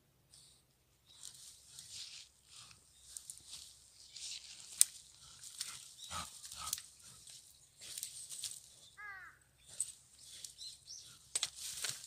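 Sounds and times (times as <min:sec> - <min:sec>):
dry leaves crackling: 0:01.2 - 0:08.9, 0:11.4 - 0:12.0.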